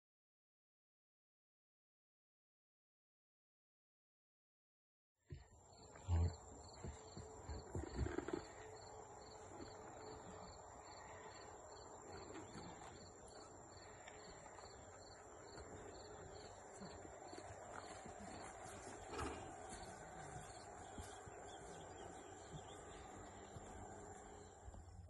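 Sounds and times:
insects chirping: 5.7 - 24.9.

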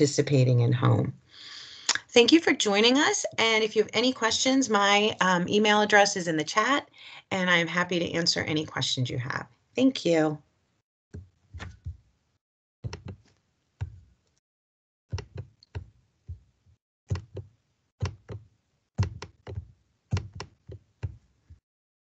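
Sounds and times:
computer mouse clicking: 12.9 - 13.2, 17.1 - 17.4, 19.0 - 20.8.

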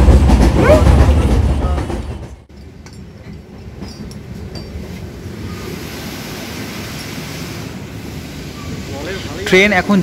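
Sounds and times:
train running rumble: 0.0 - 10.0
steady rushing hiss: 4.2 - 10.0.

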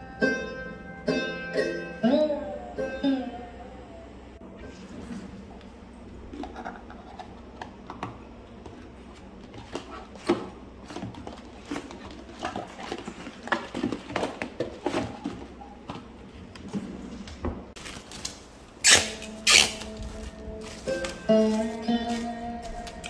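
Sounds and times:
cardboard boxes knocking and sliding: 9.2 - 17.7
plastic cling wrap crinkling: 17.8 - 23.0.

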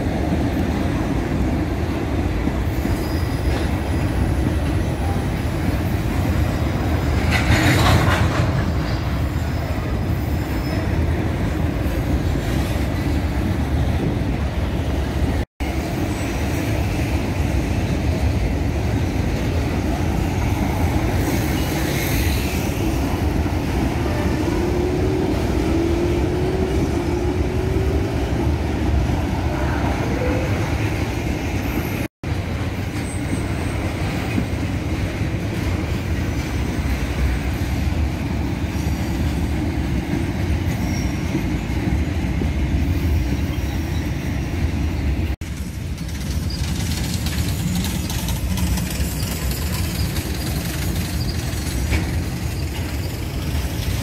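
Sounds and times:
freight train rumbling on rails: 0.0 - 54.0
faint wheel squeal: 2.8 - 5.3, 8.7 - 11.1, 40.7 - 41.8, 48.8 - 54.0.

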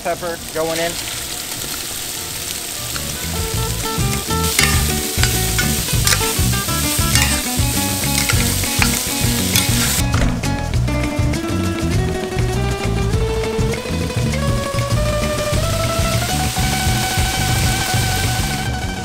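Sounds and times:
vegetables sizzling in oil: 0.0 - 10.2, 13.5 - 18.9
background music: 0.0 - 19.0
spoon stirring: 3.0 - 10.0.

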